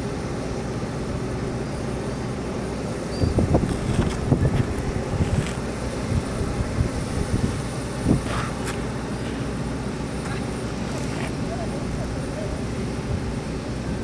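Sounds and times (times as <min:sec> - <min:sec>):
aircraft engines rumbling: 0:00.0 - 0:14.0.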